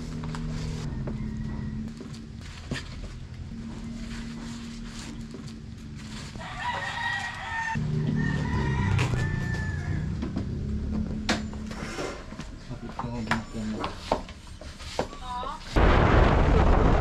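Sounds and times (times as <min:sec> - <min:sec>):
rooster crowing: 0:00.8 - 0:02.4, 0:06.3 - 0:10.7.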